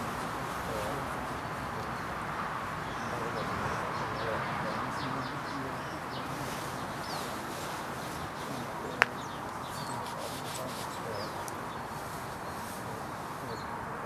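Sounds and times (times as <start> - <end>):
outdoor background noise: 0.0 - 14.0
small birds chirping: 0.0 - 14.0.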